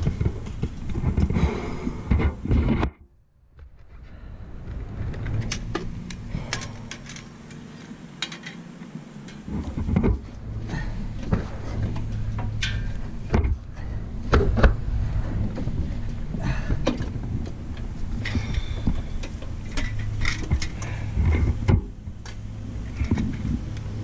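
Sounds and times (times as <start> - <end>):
sharp clicks and knocks: 4.7 - 10.5, 11.2 - 14.8, 15.5 - 23.9.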